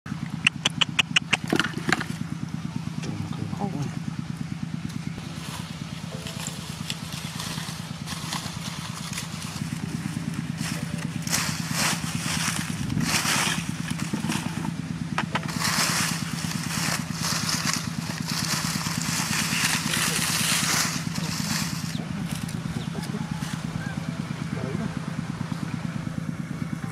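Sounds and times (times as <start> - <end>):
small engine running: 0.1 - 26.9
dry plants crackling when trampled: 5.2 - 23.8.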